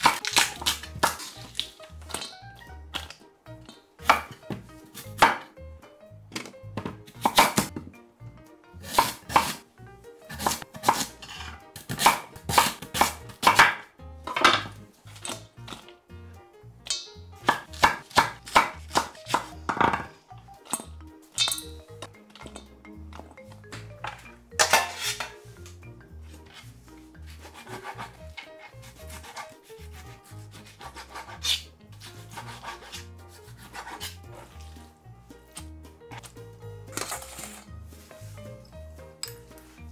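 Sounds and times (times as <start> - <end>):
soft background music: 0.0 - 39.9
knife chopping on wooden board: 2.9 - 5.5, 6.8 - 7.9, 8.8 - 9.6, 10.3 - 15.8, 17.4 - 20.2, 27.3 - 34.6
knife slicing on cutting board: 8.8 - 9.6, 24.7 - 25.3, 27.3 - 34.6.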